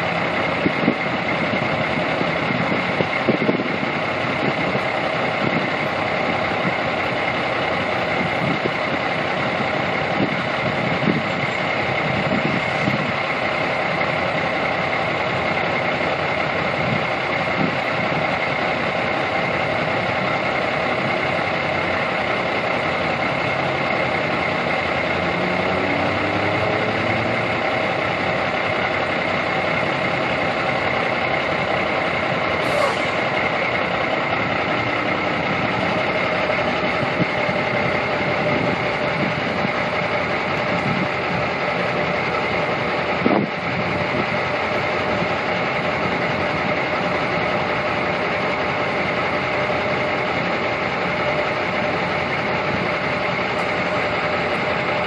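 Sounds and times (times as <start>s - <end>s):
constant high whine: 0.0s - 55.0s
low rumbles: 0.0s - 55.0s
traffic drone: 0.0s - 55.0s.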